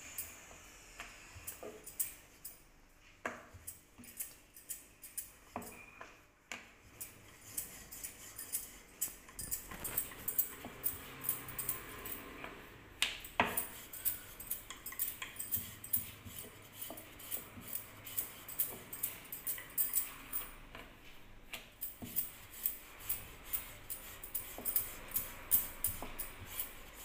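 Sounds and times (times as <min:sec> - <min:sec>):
light clicks and clinks: 0:01.4 - 0:02.6, 0:03.5 - 0:06.0, 0:07.0 - 0:12.3, 0:13.2 - 0:20.6.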